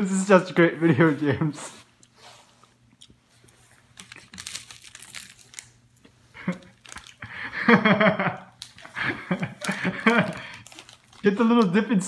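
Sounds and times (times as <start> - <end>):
candy packet crinkling: 3.5 - 7.7, 8.4 - 12.0.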